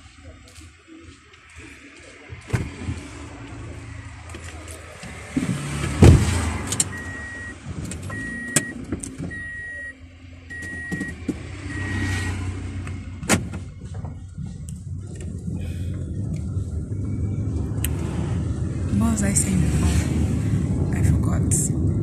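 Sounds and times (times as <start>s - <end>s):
car engine running: 0.0s - 22.0s
heavy thump: 5.4s - 6.4s
short warning beeps: 6.9s - 8.7s, 9.3s - 12.0s.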